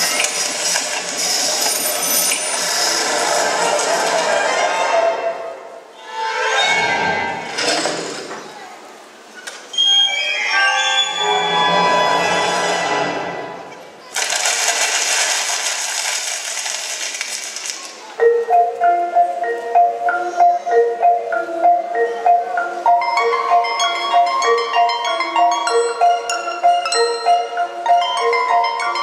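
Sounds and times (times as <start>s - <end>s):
hissing rustling noise: 0.0s - 4.3s, 14.0s - 18.1s
marimba-like percussion melody: 18.2s - 29.0s.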